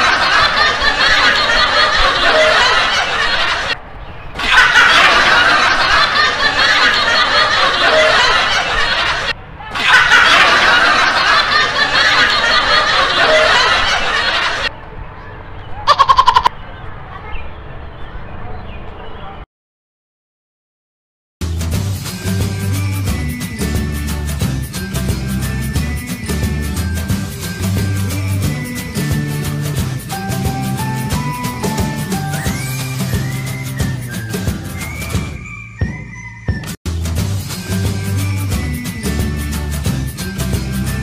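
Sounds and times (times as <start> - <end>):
laughter: 0.0 - 3.8, 4.4 - 14.7.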